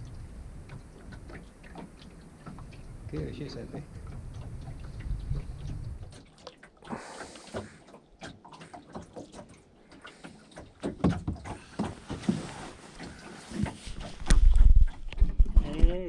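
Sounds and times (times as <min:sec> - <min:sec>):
small water splashes: 0:00.0 - 0:15.7
low rumble: 0:02.6 - 0:06.2.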